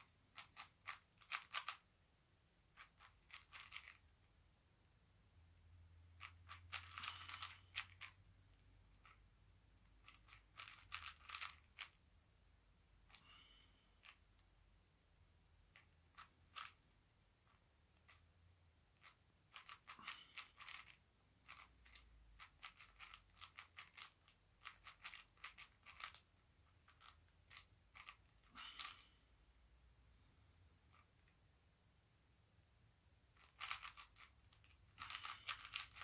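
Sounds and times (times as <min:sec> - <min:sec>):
puzzle cube layers clicking: 0:00.0 - 0:01.9, 0:02.7 - 0:04.1, 0:06.2 - 0:08.2, 0:09.9 - 0:12.0, 0:15.7 - 0:16.8, 0:19.0 - 0:29.0, 0:33.4 - 0:36.0.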